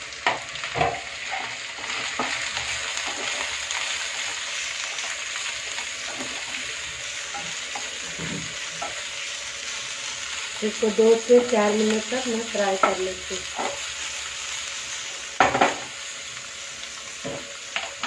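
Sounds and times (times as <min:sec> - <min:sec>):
vegetables sizzling in hot oil: 0:00.0 - 0:18.0
wooden spatula scraping a pan: 0:00.7 - 0:03.5, 0:07.3 - 0:09.0.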